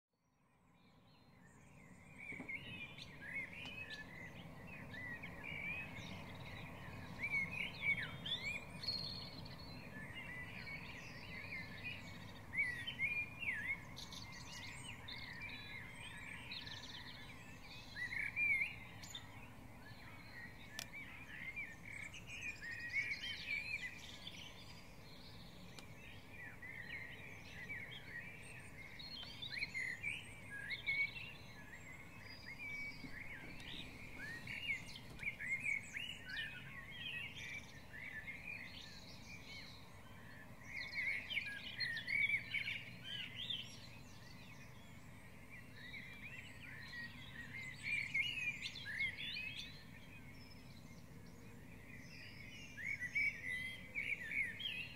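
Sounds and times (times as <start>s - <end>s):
songbirds singing and chirping: 0.2s - 54.9s.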